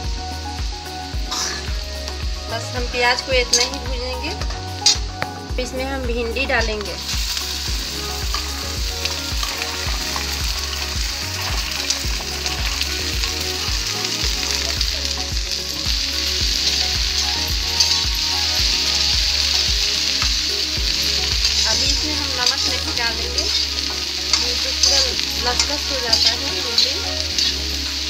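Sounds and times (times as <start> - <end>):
okra sizzling in oil: 0.0 - 28.0
metal spatula stirring: 2.8 - 5.0, 7.2 - 15.2, 16.2 - 28.0.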